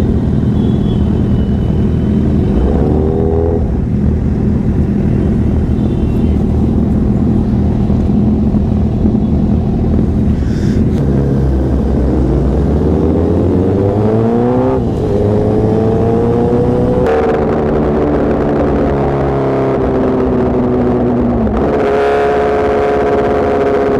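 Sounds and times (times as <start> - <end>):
motorcycle accelerating: 0.0 - 23.9
motorcycle engines idling: 3.8 - 11.5.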